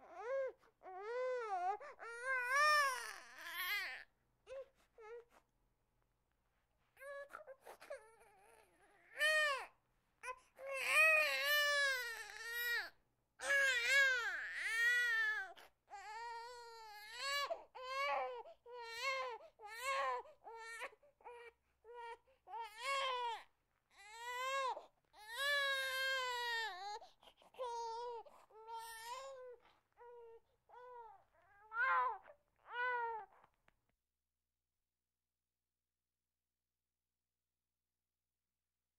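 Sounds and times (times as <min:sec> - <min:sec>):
infant crying: 0:00.0 - 0:05.3, 0:07.0 - 0:33.4.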